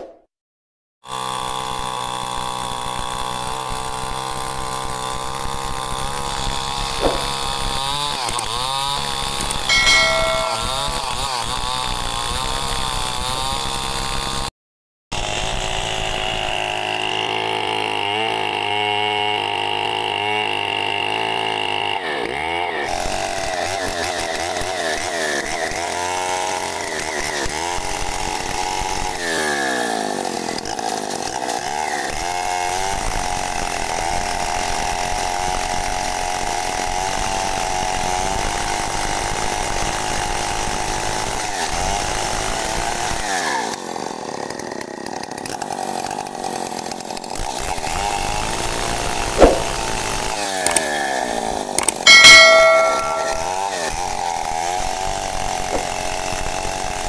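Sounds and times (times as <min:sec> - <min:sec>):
chainsaw engine revving: 0:01.0 - 0:09.7, 0:15.2 - 0:52.0
sharp knock: 0:07.0 - 0:07.4, 0:09.7 - 0:11.0, 0:49.4 - 0:49.9, 0:52.1 - 0:53.7.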